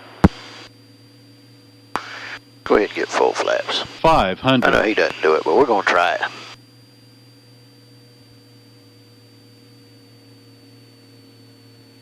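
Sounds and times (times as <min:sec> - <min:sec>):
aircraft engine and propeller drone: 0:00.0 - 0:12.0.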